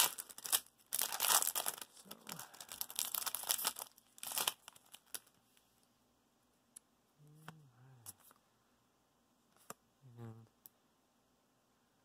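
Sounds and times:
foil wrapper tearing and crinkling: 0.0 - 5.4.

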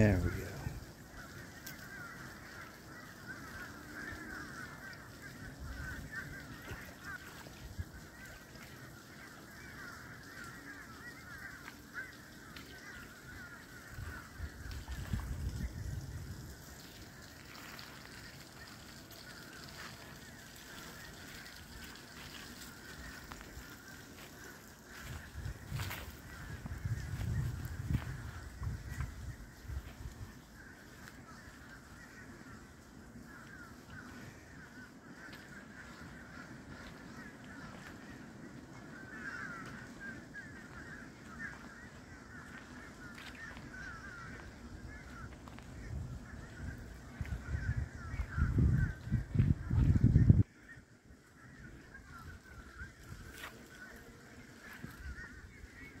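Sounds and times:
geese honking in the distance: 0.0 - 56.0
low rumble on microphone: 14.0 - 16.7, 24.9 - 30.4, 43.8 - 50.5.

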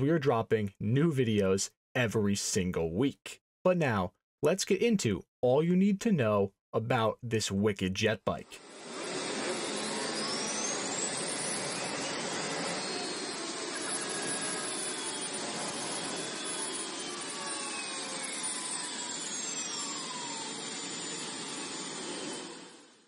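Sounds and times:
jet turbine roar and whine: 8.4 - 23.0.

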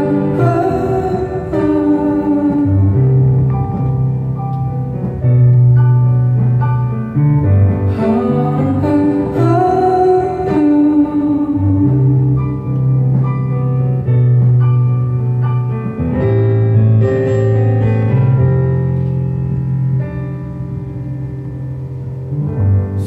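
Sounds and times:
man singing into microphone: 0.0 - 3.0, 7.9 - 12.4
keyboard chords: 0.0 - 23.0
slow bass line: 0.0 - 23.0.

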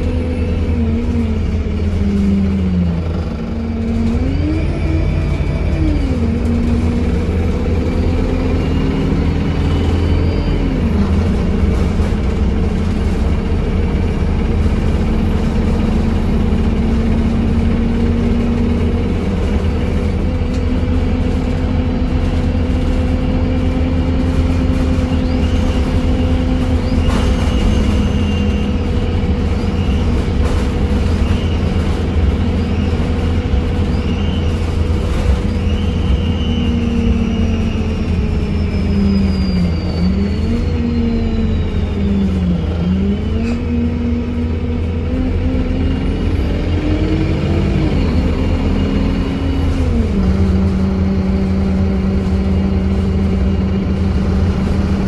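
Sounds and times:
bus engine whine: 0.0 - 55.0
road rumble: 0.0 - 55.0.

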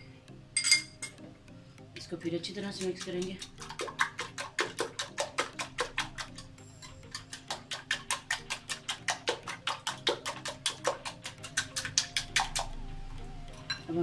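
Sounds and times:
whisk ticking against glass bowl: 2.5 - 12.8.

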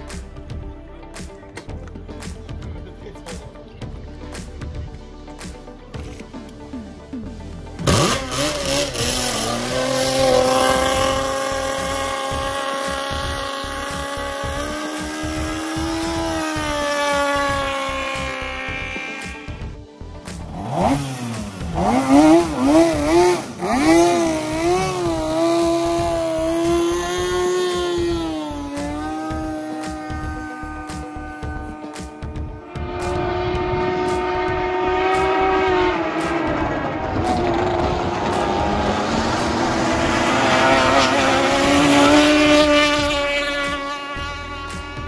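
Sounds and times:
outboard engine revving: 7.7 - 45.0.

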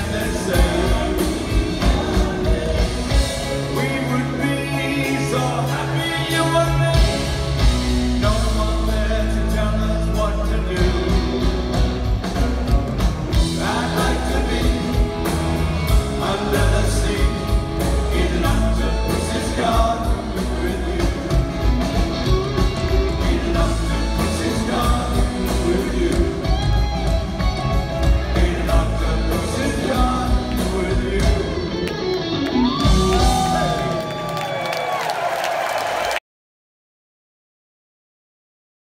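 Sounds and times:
rock and roll song with singer: 0.0 - 34.6.

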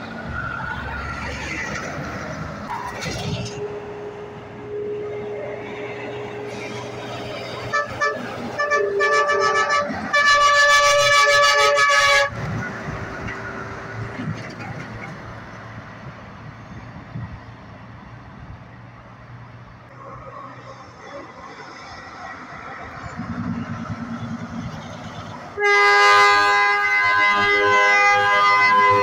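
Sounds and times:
diesel engine rumbling: 0.0 - 29.0
truck air horn blasts: 7.6 - 12.4, 25.5 - 29.0.

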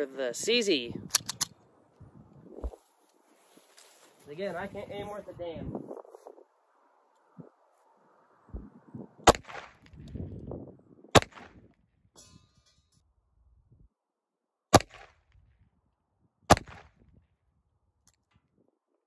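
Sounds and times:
pistol shots with ringing echo: 9.2 - 9.8, 11.1 - 11.6.

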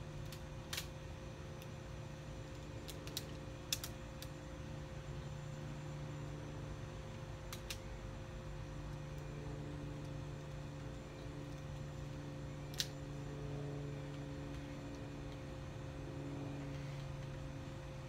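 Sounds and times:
steady low hum: 0.0 - 18.0
rubber bands snapping: 7.5 - 7.8.

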